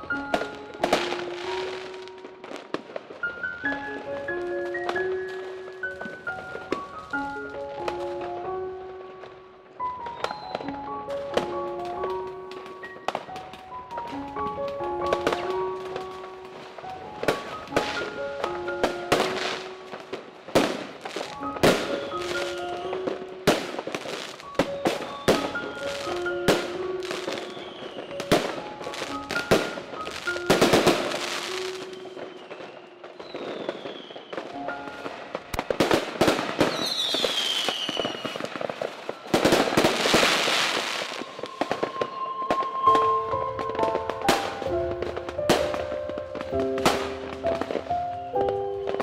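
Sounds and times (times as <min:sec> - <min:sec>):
fireworks bangs and crackling: 0:00.0 - 0:49.0
light melodic background music: 0:00.0 - 0:49.0
falling firework whistles: 0:09.8 - 0:11.0, 0:20.6 - 0:44.8.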